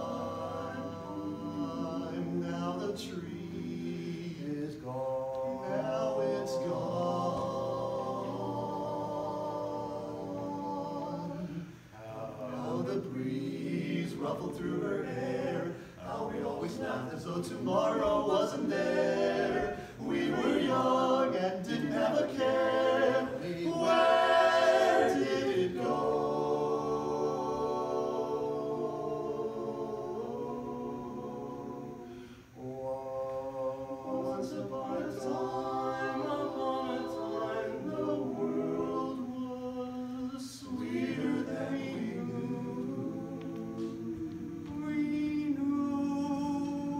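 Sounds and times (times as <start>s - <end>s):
men singing in close harmony: 0.0s - 46.9s.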